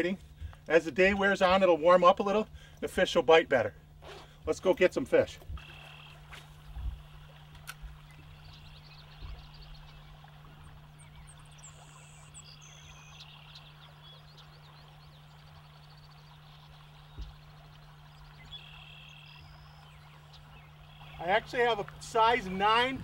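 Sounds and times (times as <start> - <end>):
steady low hum: 0.0 - 23.0
soft low thumps: 0.2 - 0.7, 6.3 - 7.2, 7.8 - 11.5, 16.8 - 18.5
bird calls: 5.6 - 23.0.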